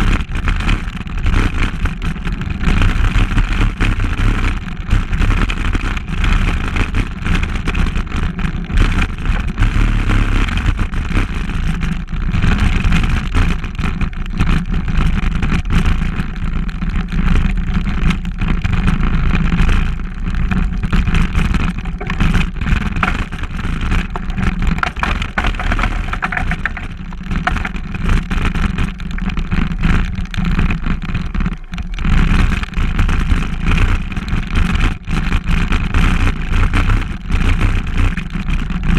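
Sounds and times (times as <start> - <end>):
vehicle low drone: 17.4 - 34.4
rattles and knocks from bumps: 20.4 - 32.6.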